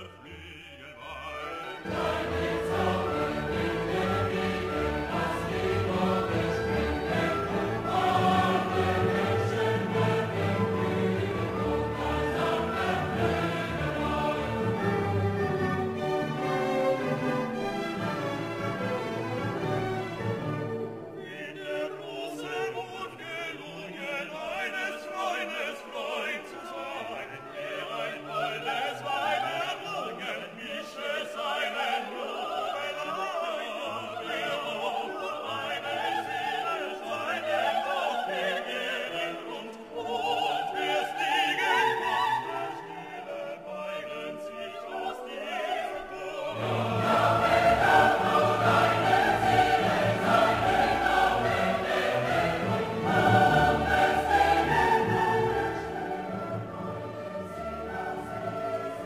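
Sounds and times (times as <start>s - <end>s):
operatic singing: 0.0s - 59.0s
orchestral accompaniment: 0.0s - 59.0s.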